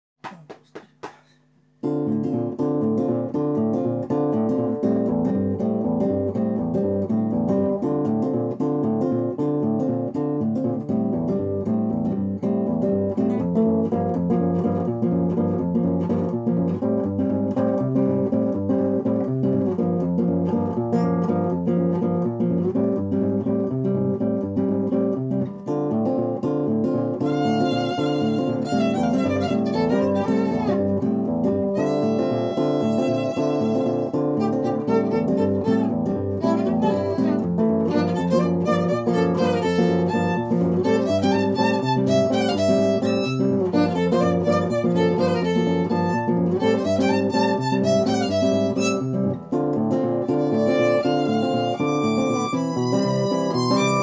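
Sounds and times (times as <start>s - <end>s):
classical guitar strummed and plucked: 0.2s - 54.0s
violin melody: 27.2s - 54.0s.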